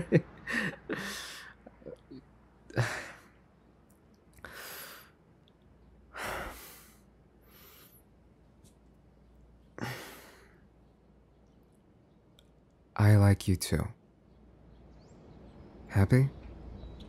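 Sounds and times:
man breathing and sighing: 0.4s - 3.4s, 4.4s - 5.2s, 6.1s - 8.1s, 9.7s - 10.7s.

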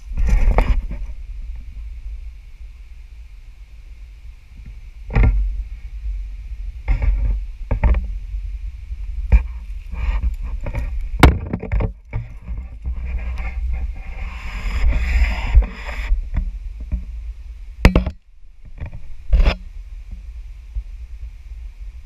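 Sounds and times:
camera handling rumble: 0.0s - 1.2s, 9.2s - 17.0s
scraping: 9.2s - 17.1s
sharp knocks: 17.9s - 18.2s.

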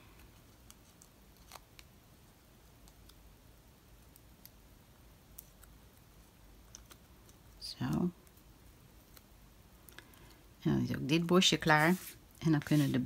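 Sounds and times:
faint paper clicks: 5.3s - 10.4s.

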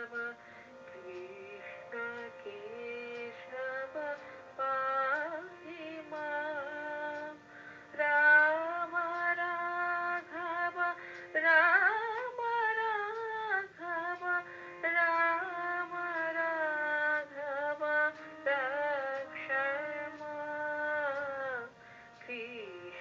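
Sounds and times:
woman singing with vibrato: 0.0s - 23.0s
singer breathing: 0.4s - 0.8s, 4.2s - 4.5s, 7.4s - 8.0s, 11.0s - 11.3s, 14.5s - 14.8s, 21.8s - 22.2s.

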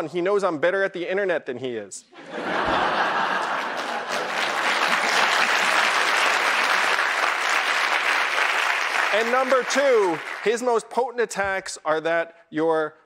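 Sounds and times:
audience applauding: 3.1s - 10.6s.

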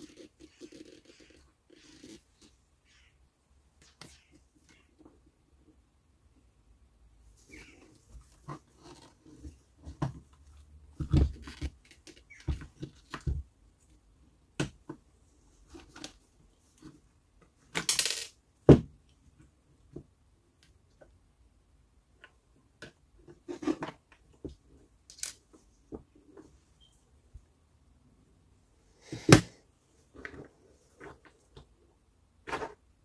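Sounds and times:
plastic parts clicking and knocking: 22.2s - 26.1s.

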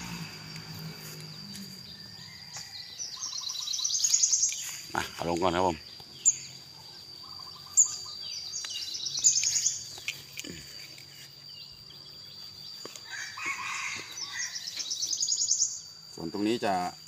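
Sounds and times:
rooster crowing: 0.0s - 3.3s, 13.0s - 14.8s
high insect drone: 0.0s - 17.0s
small birds chirping: 0.0s - 17.0s.

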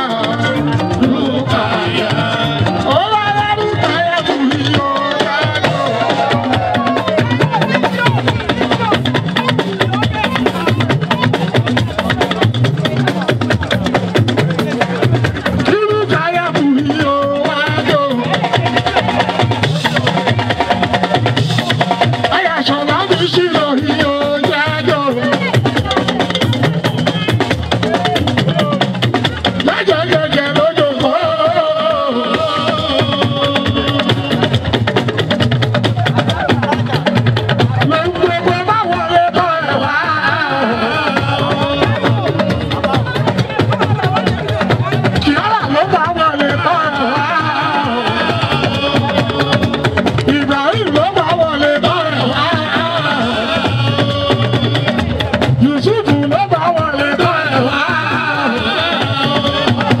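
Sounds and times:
singer's ornamented vocals: 0.0s - 7.0s, 29.6s - 34.5s, 37.8s - 42.7s, 45.2s - 60.0s
fast drum and percussion rhythm: 0.0s - 60.0s.

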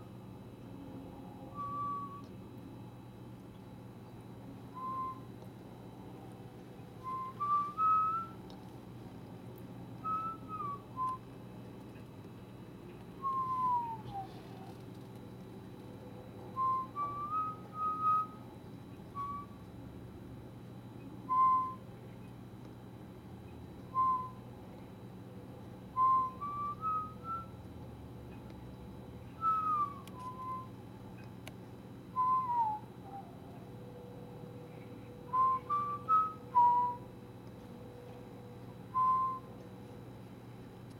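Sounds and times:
low steady hum: 0.0s - 40.9s
person whistling notes: 1.5s - 2.3s, 4.7s - 5.3s, 7.0s - 8.4s, 10.0s - 11.2s, 13.2s - 14.7s, 16.6s - 18.4s, 19.1s - 19.6s, 21.3s - 21.8s, 24.0s - 24.4s, 26.0s - 27.5s, 29.4s - 30.7s, 32.2s - 33.3s, 35.3s - 37.1s, 38.9s - 39.5s.

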